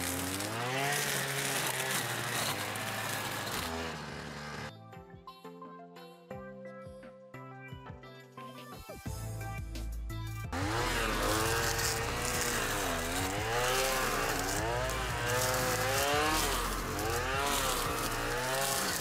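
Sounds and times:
brushcutter engine cutting brambles: 0.0 - 4.7, 10.5 - 19.0
background music: 4.6 - 19.0.

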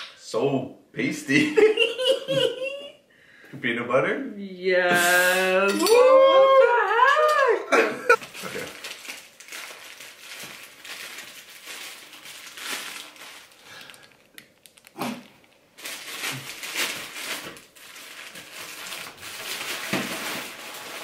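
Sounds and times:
plastic packaging crinkling: 8.2 - 21.0.

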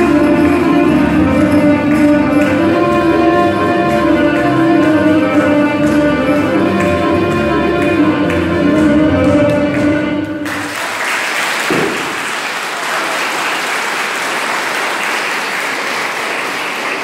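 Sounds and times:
folk dance music: 0.0 - 13.4
audience applauding: 3.8 - 17.0.

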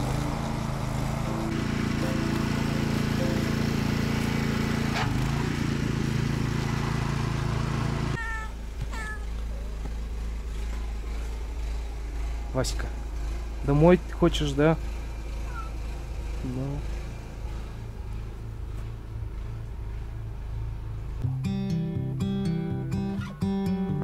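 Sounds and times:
engine hum: 0.0 - 24.0
cat meowing: 8.2 - 9.3, 15.5 - 15.8.

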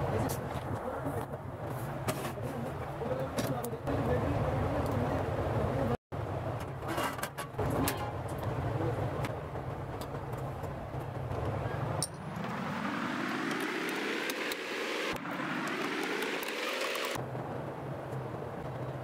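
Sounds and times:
rising whine: 11.4 - 17.2.

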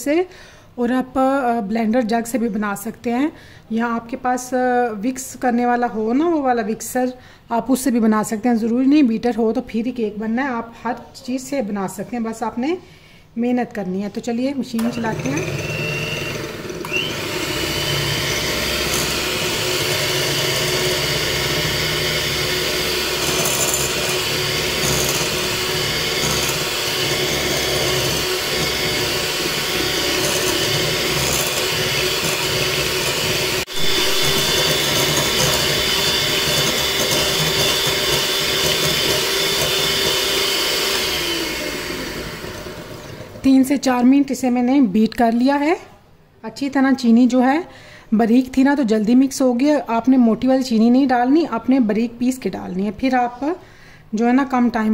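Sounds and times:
electric hand mixer whirring: 14.8 - 43.7.

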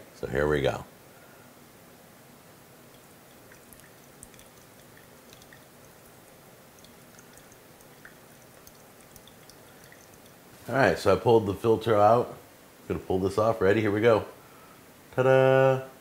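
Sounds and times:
water trickling onto coffee grounds: 2.8 - 11.0
dripping ticks: 2.9 - 10.6.

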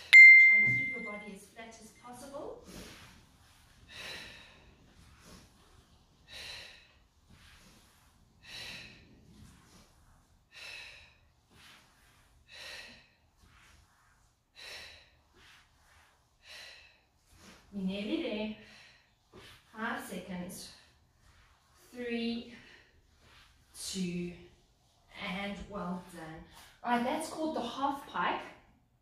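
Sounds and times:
woman breathing hard: 3.8 - 13.9, 14.5 - 17.7.

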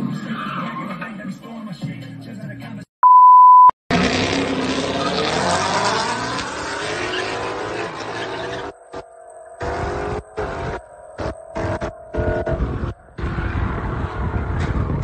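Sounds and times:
car engine revving hard: 3.9 - 9.0, 9.6 - 14.6
tyres spinning and squealing: 4.0 - 15.0.

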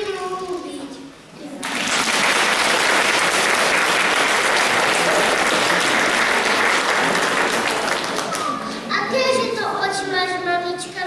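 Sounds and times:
audience applauding: 1.6 - 8.7.

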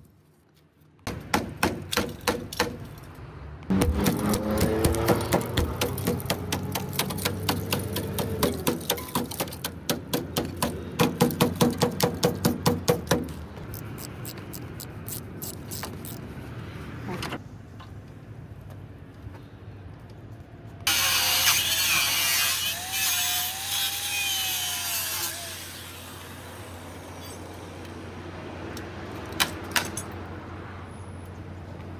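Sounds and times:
chisel hacking sheet steel: 1.1 - 2.9, 3.7 - 13.4
ratchet wrench clicking: 13.3 - 16.2.

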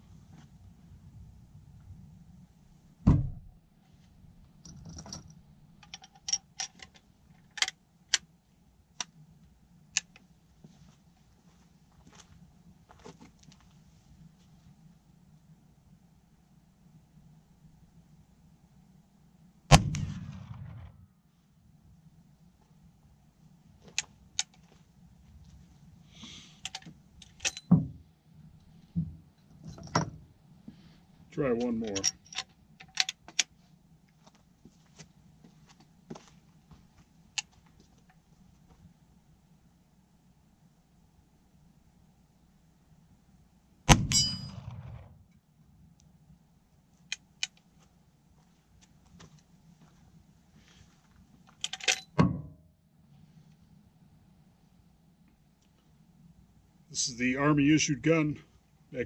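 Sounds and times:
dull thump: 3.0 - 3.5
metallic clicks and clinks: 4.6 - 7.8, 26.6 - 27.8, 31.6 - 33.5, 51.5 - 52.2
rifle action metallic clicks: 51.6 - 52.2.

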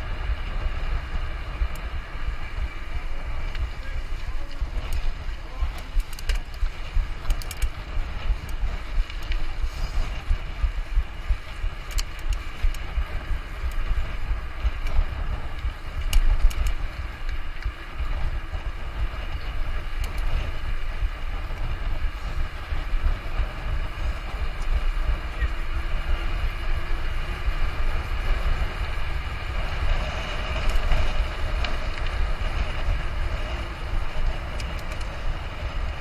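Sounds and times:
bike rattling: 0.0 - 36.0
wind and vibration rumble: 0.0 - 36.0
sharp clicks: 5.7 - 9.4, 11.8 - 12.8, 15.6 - 17.7.

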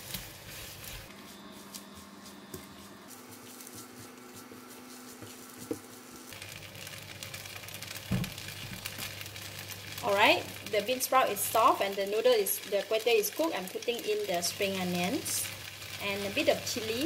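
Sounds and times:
noodles sizzling in a wok: 0.0 - 1.8, 3.1 - 17.0
steady low hum: 0.0 - 12.7.

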